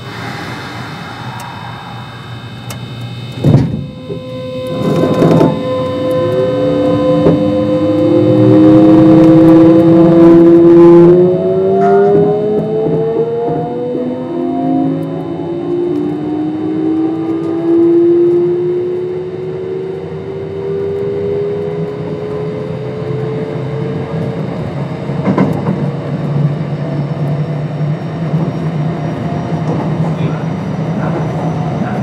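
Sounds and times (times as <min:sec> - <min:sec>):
wheel and rail running noise: 0:00.0 - 0:10.3, 0:23.1 - 0:32.0
train motors whining: 0:00.0 - 0:27.3.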